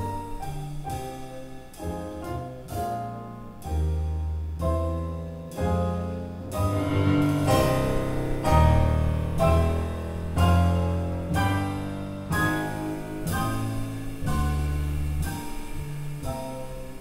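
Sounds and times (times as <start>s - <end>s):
double bass notes: 0.0s - 17.0s
piano chords: 0.0s - 17.0s
cymbal hits: 6.5s - 10.4s.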